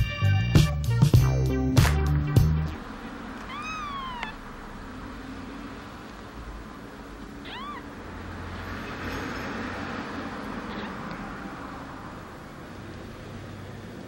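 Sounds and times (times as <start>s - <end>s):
kitten mewing: 3.4s - 4.5s, 7.4s - 8.0s.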